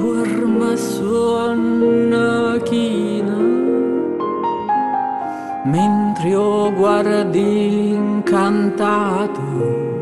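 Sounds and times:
slow piano accompaniment: 0.0 - 10.0.

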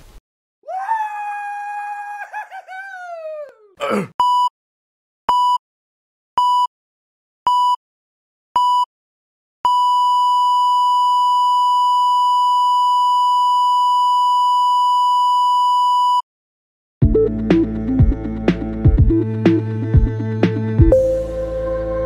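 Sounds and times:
heart monitor beeps: 4.2 - 4.5, 5.3 - 5.6, 6.4 - 6.7, 7.5 - 7.8, 8.6 - 8.9, 9.6 - 16.2.

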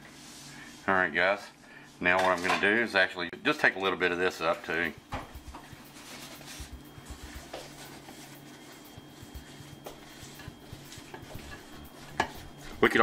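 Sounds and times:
steady low hum: 3.2 - 13.0
paper towel rubbing basket: 4.5 - 13.0.

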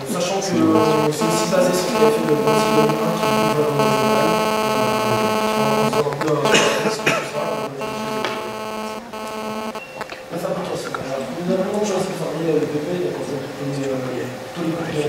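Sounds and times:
electrical mains hum: 0.6 - 10.1.

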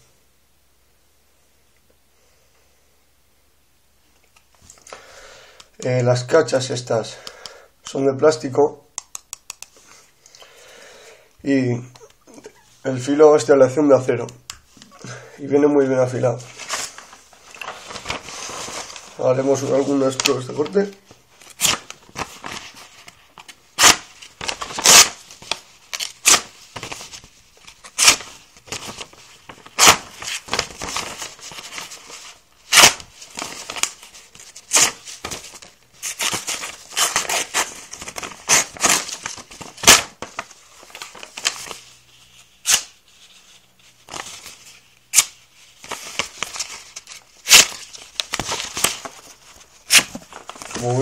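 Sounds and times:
paper rustling and crinkling: 16.1 - 51.0.

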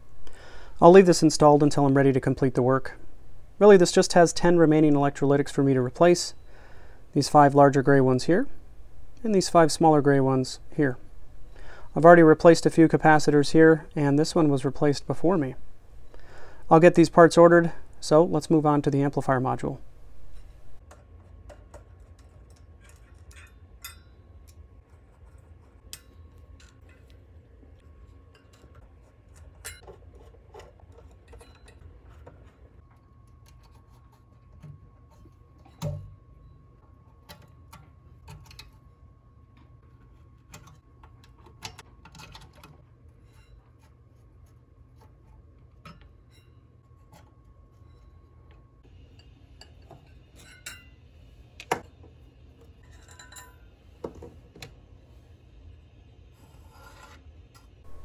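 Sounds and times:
low hum: 0.0 - 20.9, 57.5 - 58.0.

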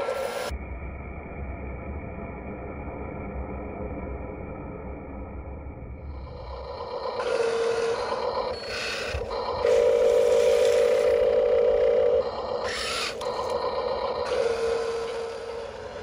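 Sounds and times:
electric tipper motor whining: 6.1 - 16.0.

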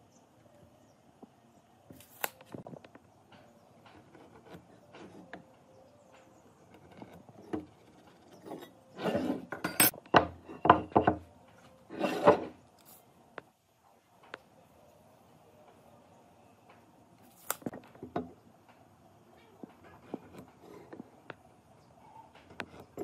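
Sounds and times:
tools knocking on wooden bench: 9.5 - 11.2.

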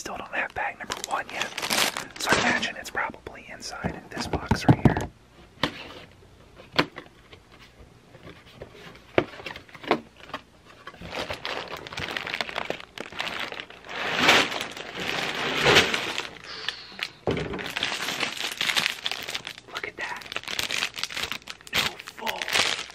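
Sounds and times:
plastic bags crinkling and sliding: 0.8 - 2.7, 10.9 - 22.9.

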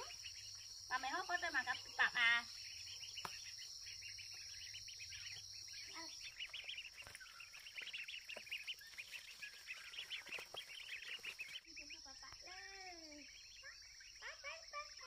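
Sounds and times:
bird chirps: 0.0 - 15.0.

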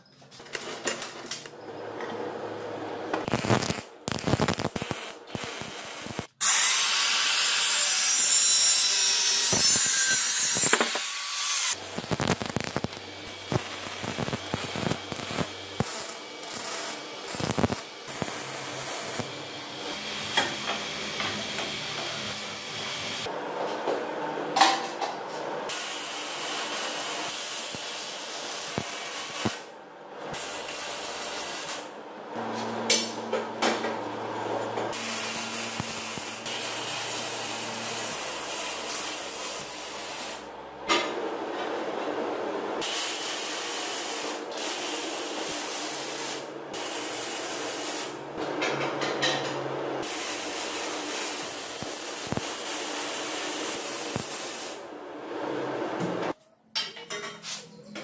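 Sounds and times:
welding arc crackling and hissing: 3.2 - 23.3, 25.7 - 29.7, 30.3 - 31.9, 34.9 - 40.5, 42.8 - 48.2, 50.0 - 54.9.

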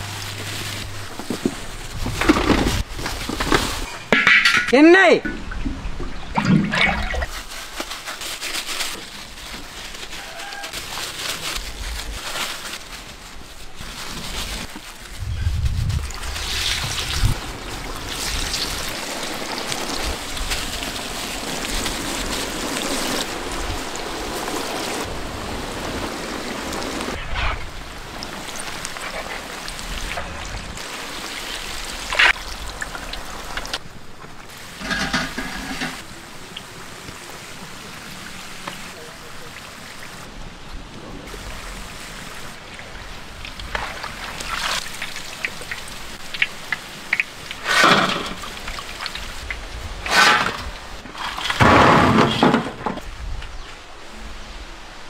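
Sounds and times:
bubbling sizzle of deep-frying: 15.9 - 39.1, 41.4 - 50.0.

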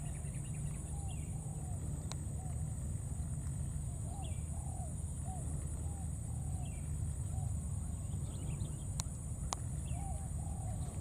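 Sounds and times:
constant high hiss: 0.0 - 11.0.

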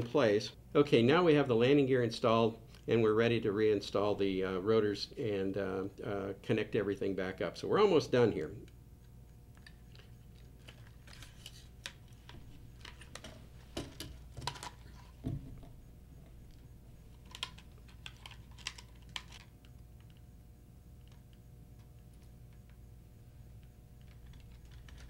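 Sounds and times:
plastic parts clicking: 17.2 - 19.5.

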